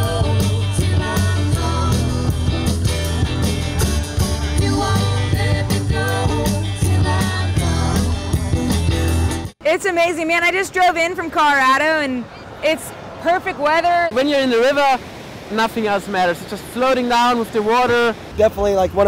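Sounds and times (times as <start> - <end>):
person singing: 0.0 - 8.7
drums beat: 0.0 - 9.5
strummed guitars: 0.0 - 9.5
bass guitar: 0.0 - 9.6.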